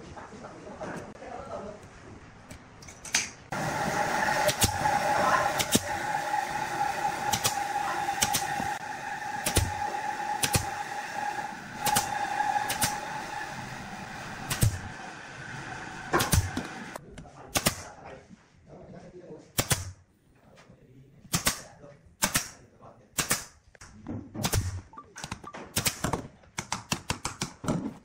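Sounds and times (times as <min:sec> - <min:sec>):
steady hum: 0:03.5 - 0:17.0
brad nailer firing: 0:04.2 - 0:04.9, 0:05.6 - 0:05.9, 0:07.3 - 0:07.6, 0:09.3 - 0:10.8, 0:11.8 - 0:13.0, 0:14.4 - 0:14.9, 0:16.1 - 0:16.8.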